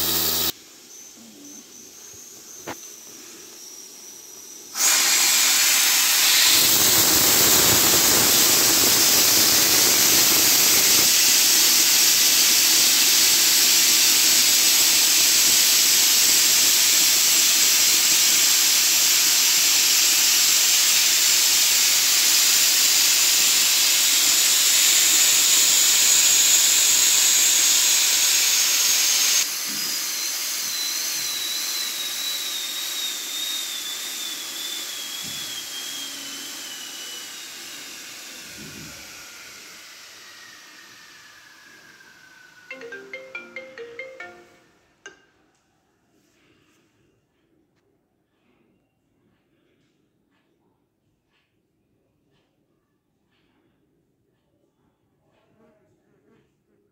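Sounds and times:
steam hissing from valve: 4.7s - 30.0s.

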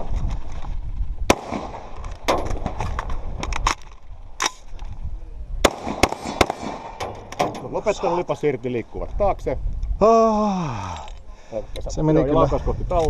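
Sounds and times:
gear and gravel rustling: 0.0s - 5.2s
rifle shots: 1.3s - 3.1s, 5.6s - 7.7s.

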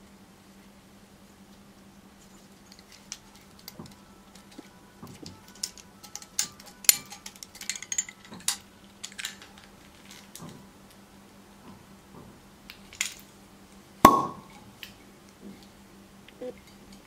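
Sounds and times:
faint low hum: 0.0s - 17.0s
corkscrew clicking and scraping: 2.2s - 10.6s.

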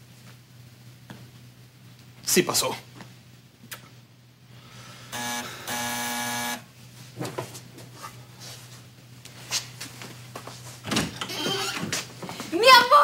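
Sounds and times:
electric door buzzer: 5.1s - 6.7s
faint footsteps: 6.9s - 13.0s.

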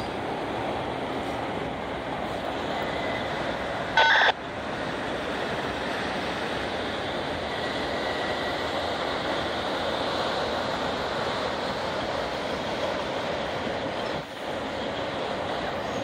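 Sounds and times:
freight cars rolling on rails: 0.0s - 16.0s
electronic beep: 4.0s - 4.3s.

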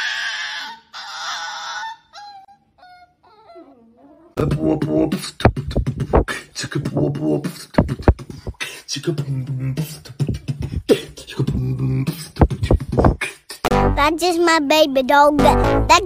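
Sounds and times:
beatboxing: 4.4s - 14.1s, 15.4s - 16.0s.

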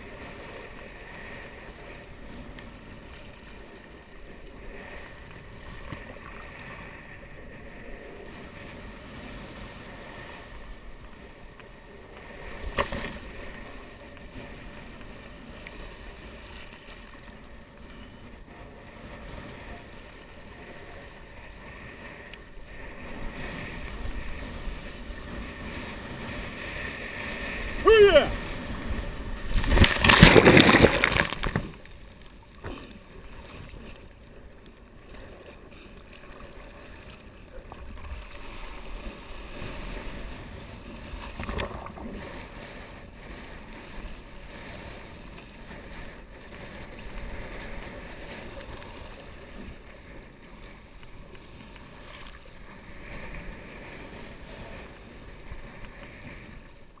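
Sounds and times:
water sloshing and rushing: 0.0s - 57.0s
water splashes: 22.8s - 34.2s, 35.1s - 57.0s.

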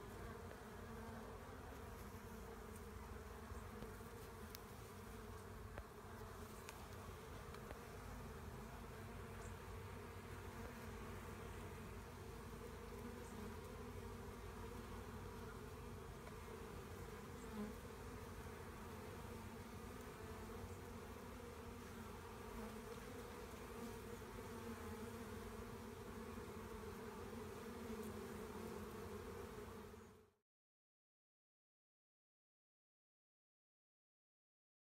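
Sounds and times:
honeybees buzzing: 0.0s - 30.3s.

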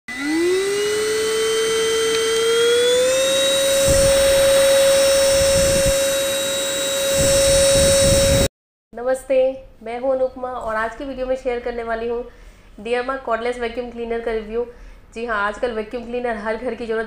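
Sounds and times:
vacuum motor high whine: 0.1s - 8.5s.

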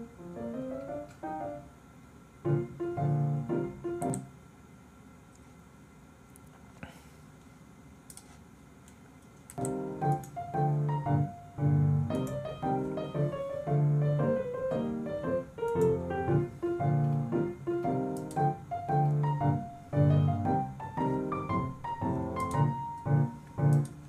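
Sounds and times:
piano music: 0.0s - 1.8s, 2.4s - 4.3s, 9.6s - 24.0s.

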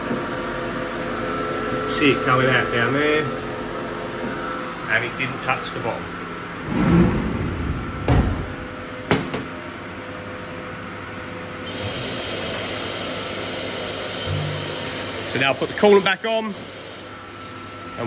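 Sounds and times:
milling machine hiss and whir: 0.0s - 6.5s, 11.6s - 18.0s.

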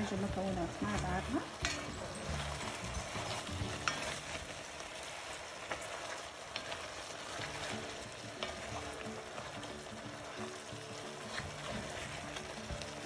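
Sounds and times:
chicken sizzling in oil: 0.0s - 13.0s
spatula stirring: 0.0s - 13.0s.

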